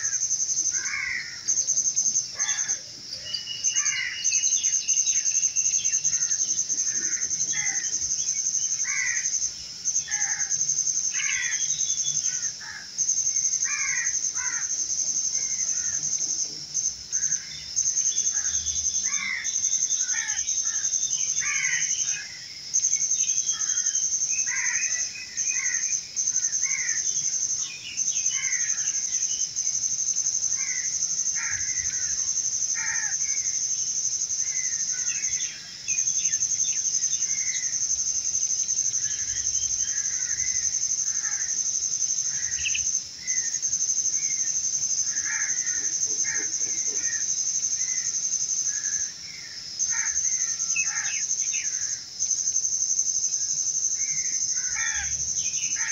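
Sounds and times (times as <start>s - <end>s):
insects trilling: 0.0s - 55.9s
birds chirping: 2.2s - 10.6s, 42.2s - 43.6s.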